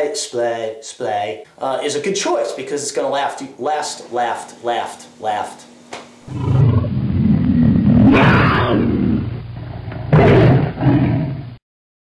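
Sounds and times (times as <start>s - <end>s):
big cat growling roar: 6.3s - 11.6s.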